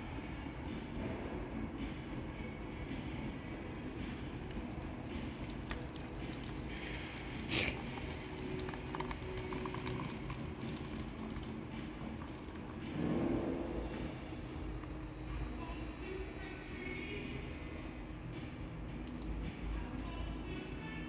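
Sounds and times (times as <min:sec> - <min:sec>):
water pouring into a plastic jug: 0:03.5 - 0:15.8.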